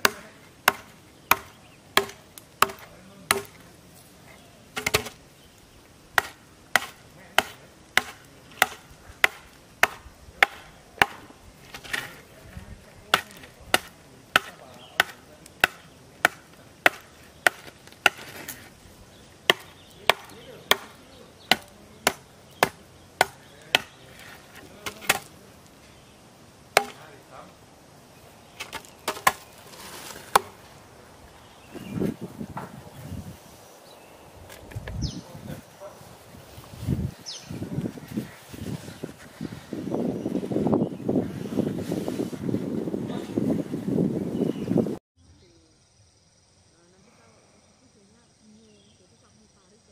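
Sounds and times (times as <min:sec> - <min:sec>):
hatchet chopping wood: 0:00.0 - 0:03.6, 0:04.8 - 0:05.2, 0:06.1 - 0:12.2, 0:13.1 - 0:18.6, 0:19.4 - 0:25.4, 0:26.7 - 0:27.1, 0:28.6 - 0:30.6.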